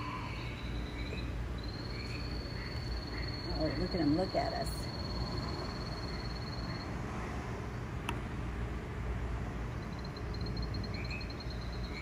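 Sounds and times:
low rumble and hiss: 0:00.0 - 0:12.0.

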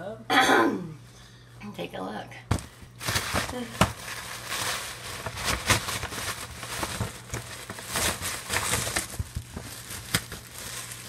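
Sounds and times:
paper rustling: 0:03.0 - 0:11.0.

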